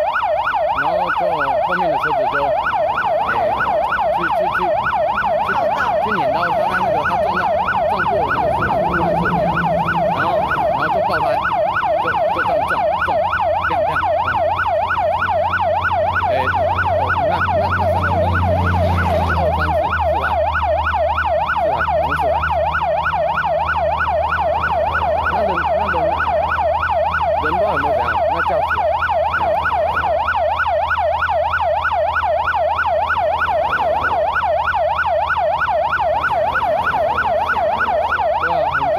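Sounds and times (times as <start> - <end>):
emergency siren warbling: 0.0 - 38.9
low engine rumble: 0.4 - 38.9.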